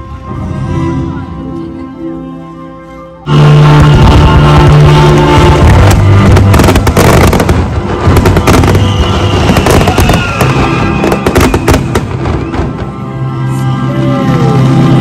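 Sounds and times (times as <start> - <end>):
music playing: 0.0 - 15.0
fireworks bangs and crackles: 3.3 - 13.2.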